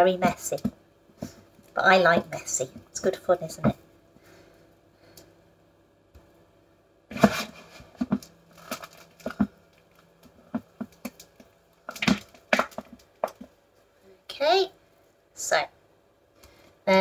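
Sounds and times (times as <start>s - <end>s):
dough squelching and tearing: 7.1s - 13.5s.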